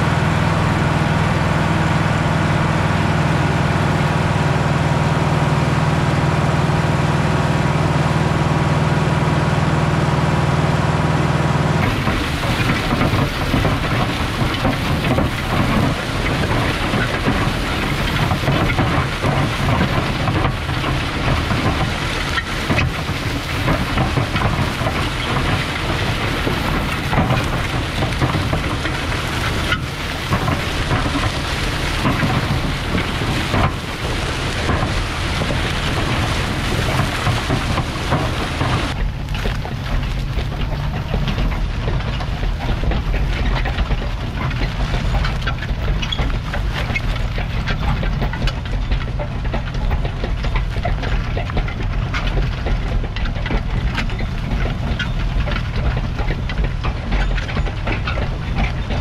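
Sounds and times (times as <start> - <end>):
tractor diesel engine running: 0.0 - 59.0
disc blades crackling through soil: 11.8 - 52.8.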